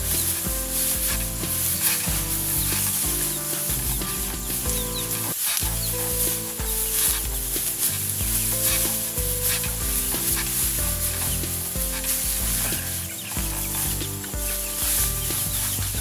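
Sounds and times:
background music of held notes: 0.0 - 16.0
straw rustling underfoot: 0.0 - 16.0.

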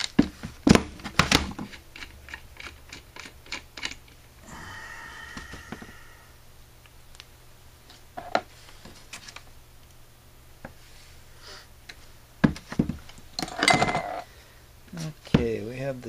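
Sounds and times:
metal parts clinking and knocking: 13.4 - 14.2.

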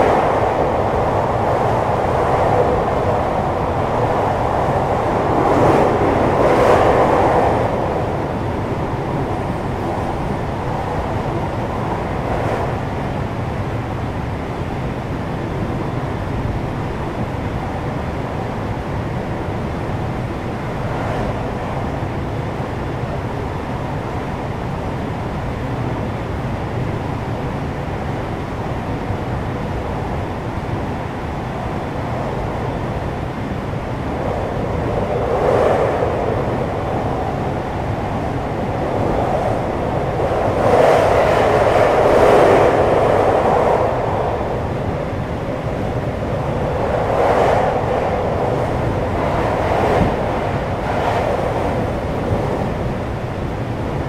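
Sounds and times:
train wheels rumbling on rails: 29.8 - 54.0.

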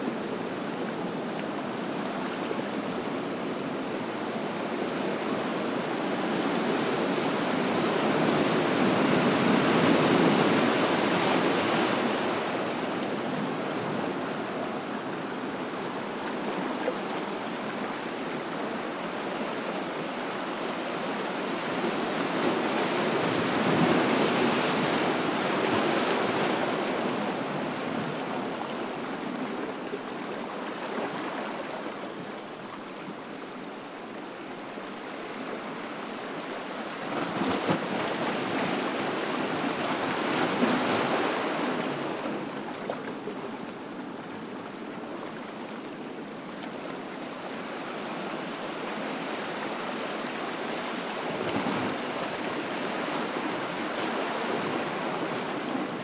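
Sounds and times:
ocean waves breaking on beach: 0.0 - 56.0.

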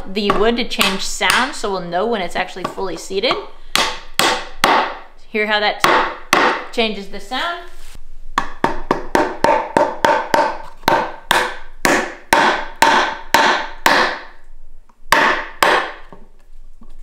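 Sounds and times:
hammer striking wooden pegs: 0.2 - 1.6, 2.6 - 5.0, 5.8 - 6.7, 8.4 - 14.4, 15.1 - 16.2.

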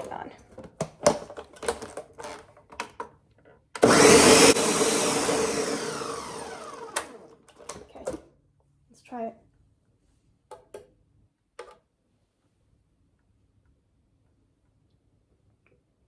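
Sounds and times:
blender motor spinning down: 3.8 - 7.4.

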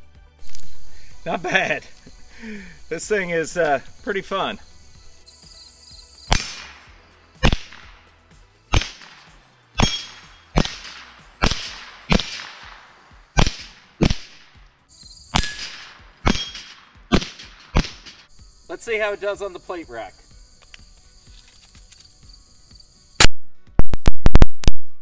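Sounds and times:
rifle shots: 6.3 - 8.0, 8.7 - 14.6, 15.3 - 18.3
metallic ring of steel target: 9.8 - 12.6, 15.2 - 18.2.

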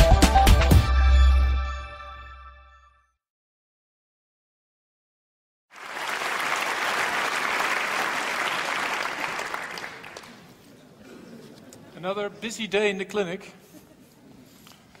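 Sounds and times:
audience applauding: 5.7 - 10.6.

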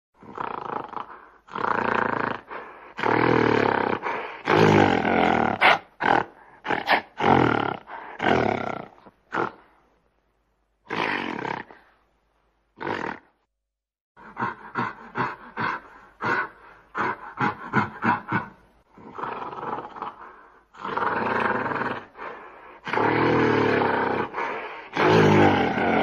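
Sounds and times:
gorilla roaring: 0.2 - 9.7, 12.8 - 13.4, 14.2 - 22.2, 22.8 - 26.0.

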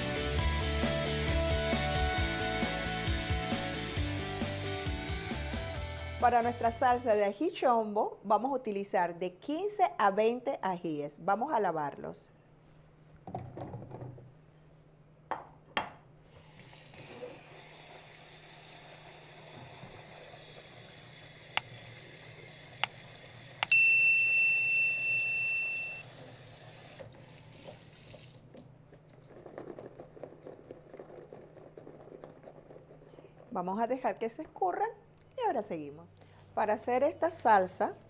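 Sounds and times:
tap water running into colander: 16.6 - 23.7, 26.0 - 28.7
loud ringing chime: 23.7 - 26.1.

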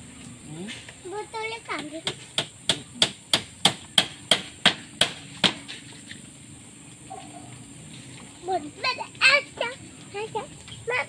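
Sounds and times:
hammer striking wooden planks: 1.8 - 5.8.

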